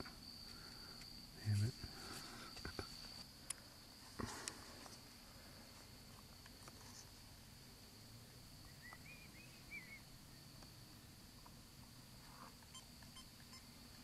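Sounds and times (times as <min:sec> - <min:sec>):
faint chirping call: 0:08.6 - 0:10.7, 0:12.6 - 0:14.0.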